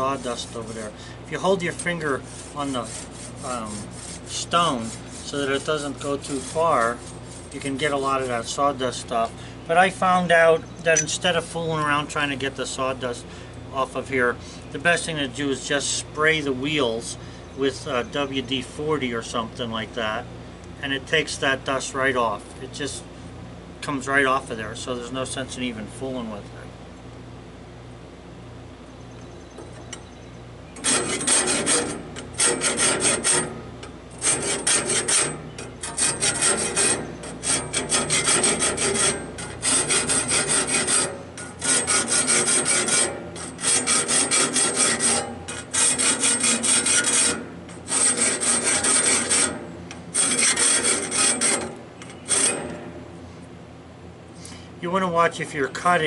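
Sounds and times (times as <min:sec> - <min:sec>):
file rasping on saw blade teeth: 0:00.0 - 0:08.5, 0:30.8 - 0:33.6, 0:34.2 - 0:52.8.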